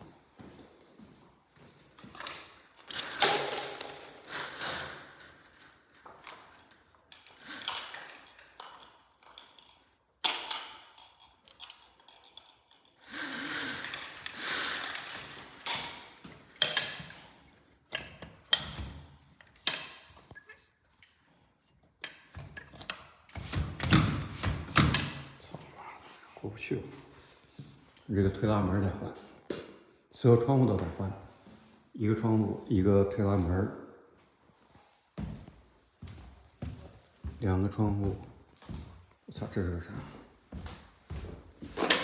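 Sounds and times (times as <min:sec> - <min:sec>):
vertical blinds clattering: 0:02.0 - 0:21.3, 0:41.6 - 0:42.0.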